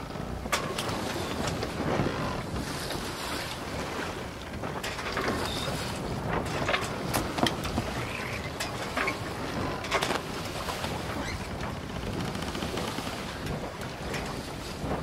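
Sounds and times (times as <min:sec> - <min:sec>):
water noise: 0:00.0 - 0:15.0
wind on microphone: 0:00.0 - 0:15.0.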